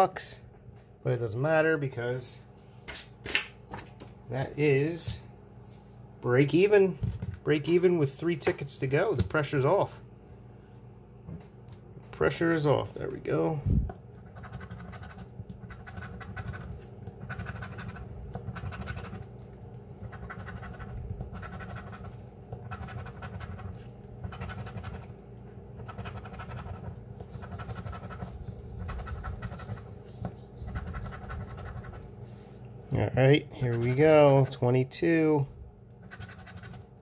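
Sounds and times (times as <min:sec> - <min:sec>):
coin scraping a scratch card: 0:14.2 - 0:19.2, 0:20.0 - 0:25.1, 0:25.8 - 0:29.9, 0:30.7 - 0:32.0, 0:36.0 - 0:36.8.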